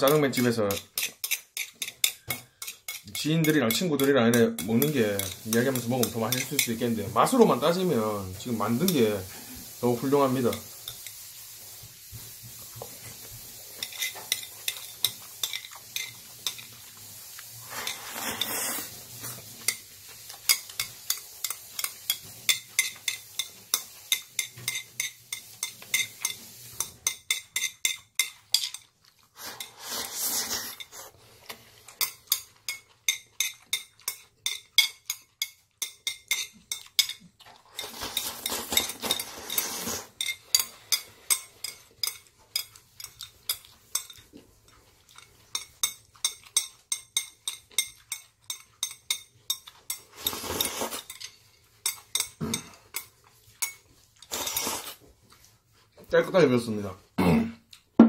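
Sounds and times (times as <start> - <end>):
metal chopsticks scraping a plate: 0.0 - 11.3, 13.7 - 55.5
noodles slurped: 17.4 - 19.4, 29.2 - 31.9, 37.5 - 40.2, 50.1 - 51.1, 54.2 - 55.5.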